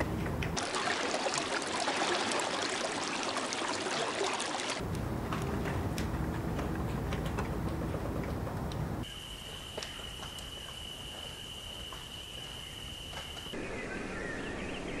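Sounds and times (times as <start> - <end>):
water lapping on shore: 0.6 - 5.0
bird twittering chirps: 9.8 - 15.0.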